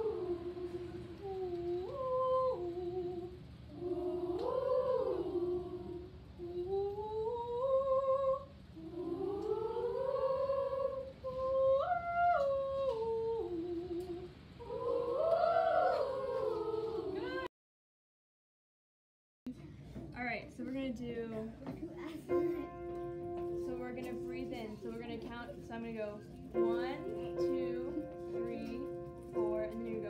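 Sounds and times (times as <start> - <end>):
girls' choir vocalizing: 14.6 - 17.5.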